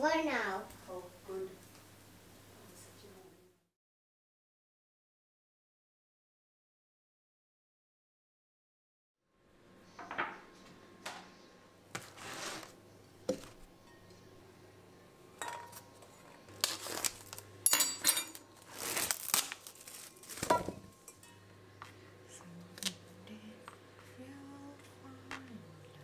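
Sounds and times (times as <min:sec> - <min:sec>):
bowls clinking: 0:15.4 - 0:16.4, 0:17.6 - 0:18.5, 0:20.4 - 0:21.6
plastic wrap crinkling: 0:16.5 - 0:17.5, 0:18.3 - 0:20.8.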